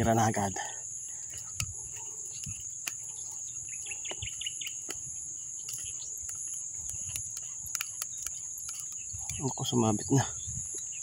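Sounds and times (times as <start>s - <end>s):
insect chorus: 0.0s - 11.0s
light clicks: 4.0s - 10.9s.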